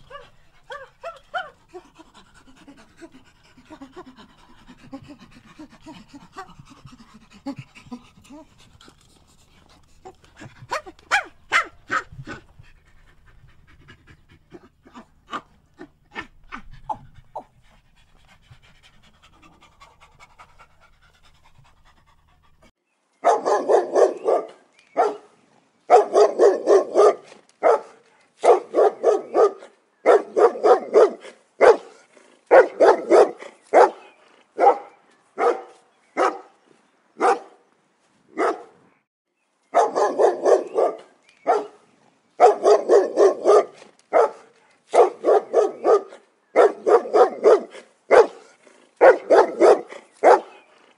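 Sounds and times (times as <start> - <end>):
small dog barking: 0.0 - 1.6, 10.7 - 12.4, 14.9 - 17.5, 23.2 - 25.3, 25.9 - 36.5, 37.2 - 37.6, 38.4 - 38.8, 39.7 - 41.8, 42.4 - 50.6
faint clicks and chirps: 24.7 - 25.0, 41.0 - 41.5.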